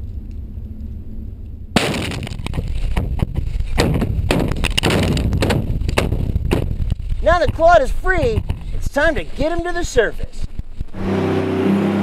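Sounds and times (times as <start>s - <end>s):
continuous low rumble: 0.0s - 11.1s
explosive blasts: 1.7s - 6.8s.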